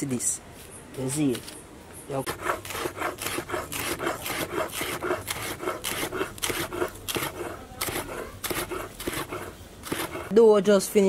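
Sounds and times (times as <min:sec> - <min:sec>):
knife slicing on wooden board: 0:02.3 - 0:10.4.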